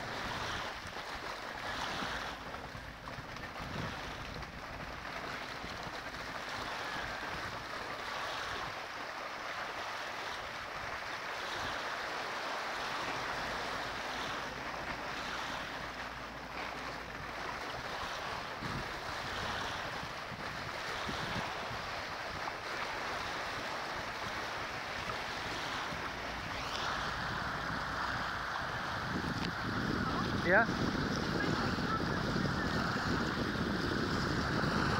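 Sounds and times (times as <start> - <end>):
wind gusting on microphone: 0.0 - 7.6, 17.0 - 34.9
waves lapping on rocks: 0.0 - 34.9.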